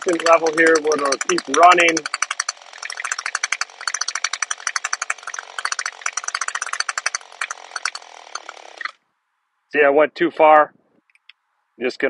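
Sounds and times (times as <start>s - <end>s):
string trimmer engine idling: 0.0s - 9.0s.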